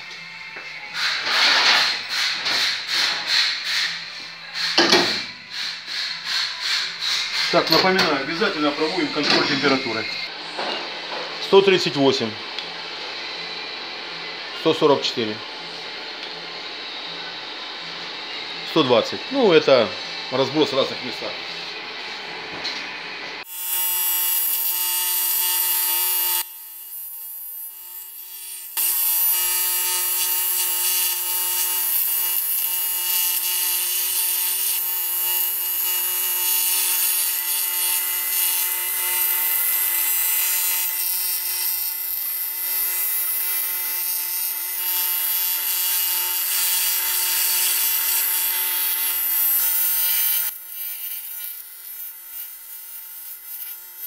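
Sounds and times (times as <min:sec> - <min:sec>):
welding arc buzzing hiss: 0:00.0 - 0:10.4, 0:23.4 - 0:54.0.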